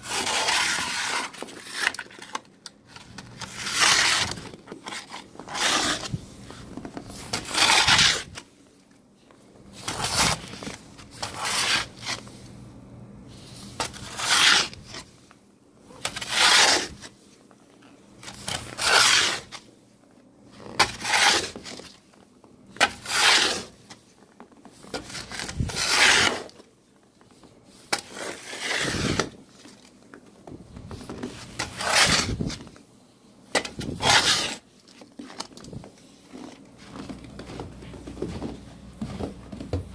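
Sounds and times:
snow shovel scraping: 0:00.0 - 0:01.8, 0:03.4 - 0:04.4, 0:05.0 - 0:08.4, 0:16.1 - 0:17.1, 0:18.8 - 0:19.6, 0:20.8 - 0:21.6, 0:22.9 - 0:23.8, 0:25.0 - 0:26.5, 0:28.0 - 0:29.4, 0:31.4 - 0:32.6, 0:33.8 - 0:34.6.

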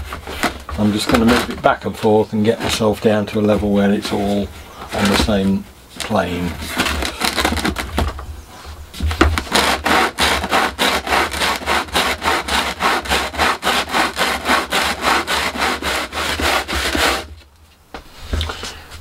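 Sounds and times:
edge rasping on sandpaper: 0:09.5 - 0:17.3.

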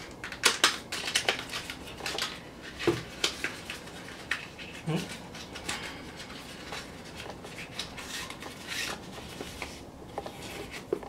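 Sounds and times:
packaging rustling and scraping: 0:00.0 - 0:11.0.

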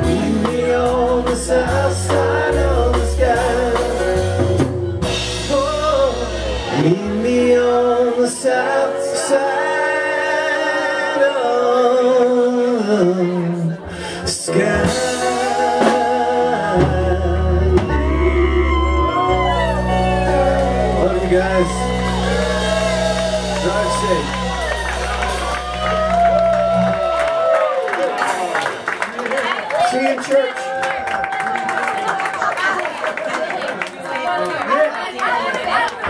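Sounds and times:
bass line: 0:00.0 - 0:08.6, 0:14.3 - 0:27.7
drums: 0:00.0 - 0:09.1, 0:14.2 - 0:29.9
man singing: 0:00.0 - 0:24.8
electric guitar: 0:13.2 - 0:28.9.

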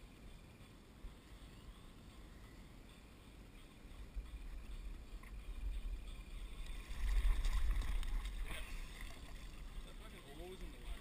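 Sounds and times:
water splashing around boat: 0:06.2 - 0:11.0.

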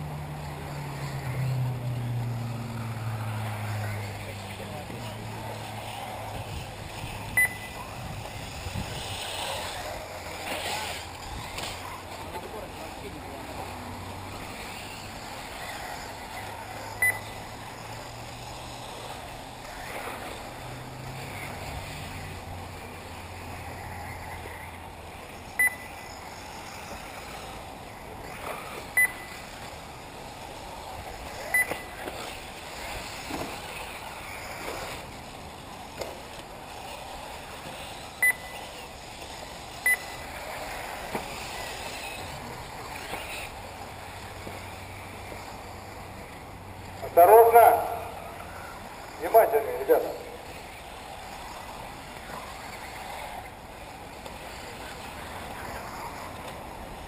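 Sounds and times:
electric rc cars running: 0:00.0 - 0:57.0
short high beeps: 0:07.4 - 0:07.8, 0:17.0 - 0:17.2, 0:25.6 - 0:25.9, 0:29.0 - 0:29.3, 0:31.5 - 0:31.8, 0:38.2 - 0:38.5, 0:39.8 - 0:40.1.

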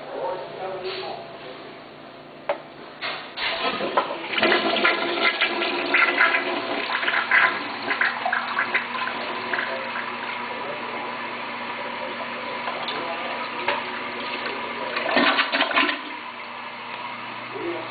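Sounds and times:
toilet flushing: 0:03.4 - 0:16.9
water gurgling: 0:03.6 - 0:16.6.

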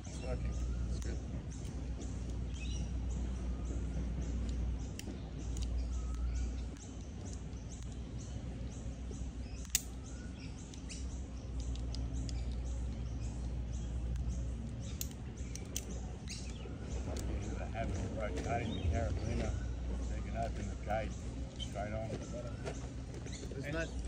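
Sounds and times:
birds chirping: 0:00.0 - 0:24.0
low rumble: 0:00.0 - 0:24.0
sharp click: 0:09.6 - 0:10.0.

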